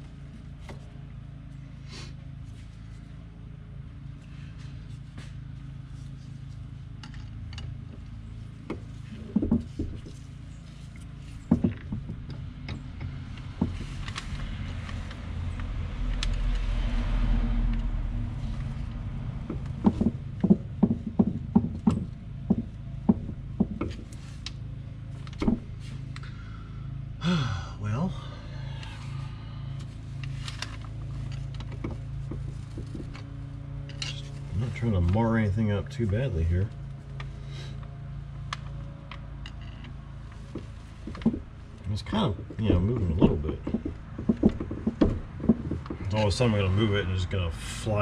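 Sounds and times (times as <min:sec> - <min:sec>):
low hum: 0:00.0 - 0:48.0
rush of noise with low rumble: 0:12.2 - 0:24.6.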